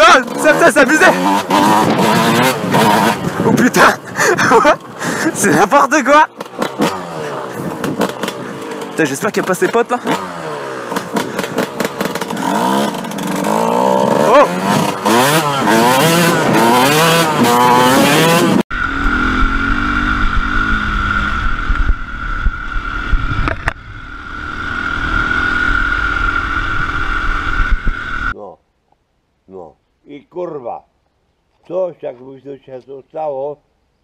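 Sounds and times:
dirt bike at steady pace: 0.0 - 28.3
dirt bike revving: 0.0 - 28.4
wind on microphone: 19.1 - 24.1.

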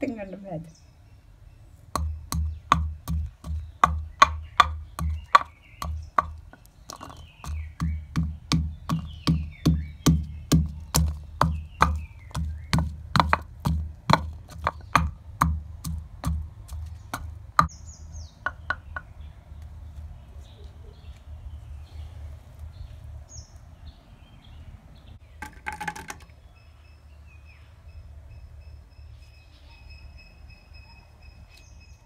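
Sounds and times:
pestle pounding in wooden mortar: 1.9 - 17.7, 18.4 - 19.1
faint bird chirps: 26.3 - 32.0.

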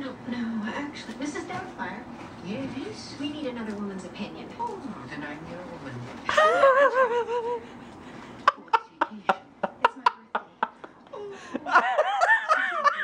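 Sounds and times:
person laughing: 6.3 - 7.7, 11.1 - 13.0.

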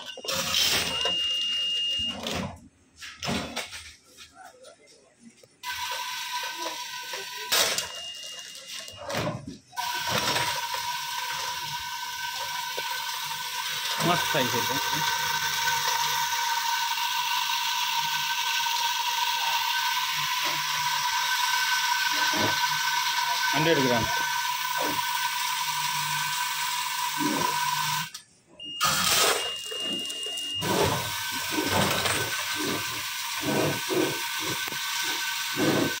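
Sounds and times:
packing machine whine and hiss: 0.2 - 2.5, 5.7 - 28.2, 28.8 - 36.0
machine bursts: 19.4 - 28.1, 28.8 - 36.0.

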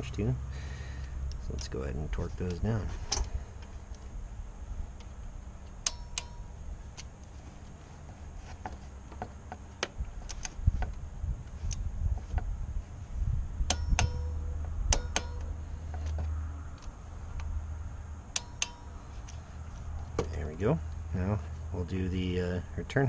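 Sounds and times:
torque wrench clicking: 5.6 - 7.1, 18.3 - 18.9
low rumble: 9.9 - 21.8.

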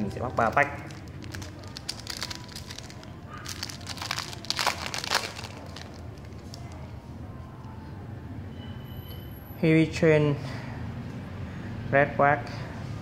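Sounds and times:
foil wrapper crinkling: 0.2 - 6.8.

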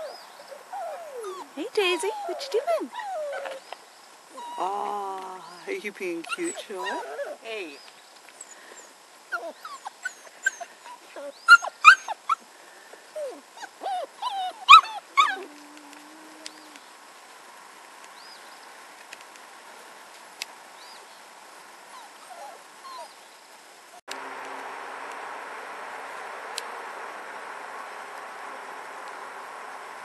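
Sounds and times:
puppies yipping and whimpering: 0.0 - 3.7, 4.3 - 4.8, 6.3 - 7.4, 8.4 - 12.4, 13.2 - 16.8, 21.9 - 23.2.

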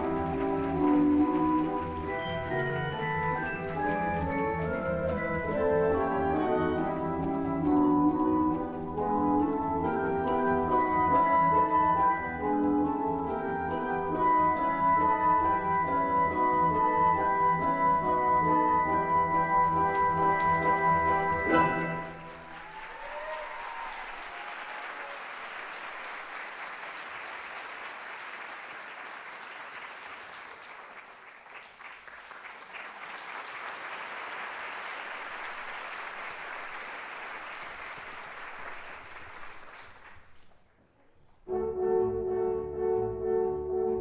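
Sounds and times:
audience applauding: 0.0 - 8.7, 18.8 - 41.4
orchestral music with horns: 0.0 - 22.6, 41.4 - 44.0.

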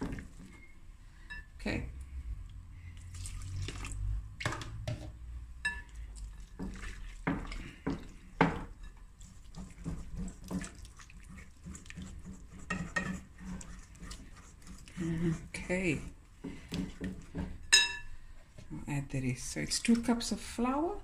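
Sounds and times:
whisk beating wet batter: 6.1 - 17.8.

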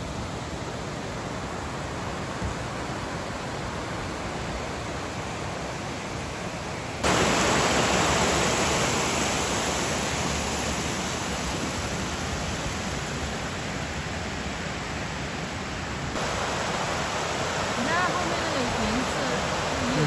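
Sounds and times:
running water rushing: 0.0 - 20.0.

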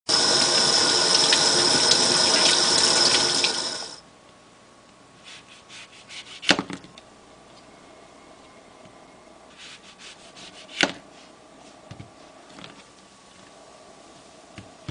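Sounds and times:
tap water running into sink: 0.1 - 4.0.

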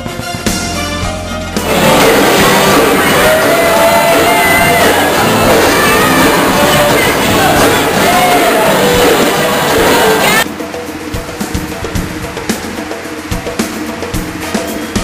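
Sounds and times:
live band playing dance music: 0.0 - 15.0
person singing: 1.6 - 10.4.

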